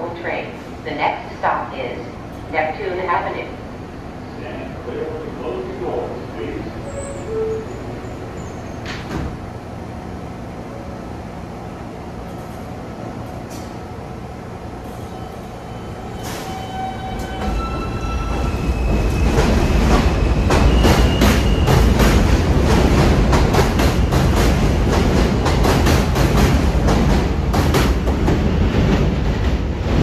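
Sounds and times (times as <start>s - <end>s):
train humming: 0.0s - 30.0s
train doors thudding shut: 8.7s - 9.5s.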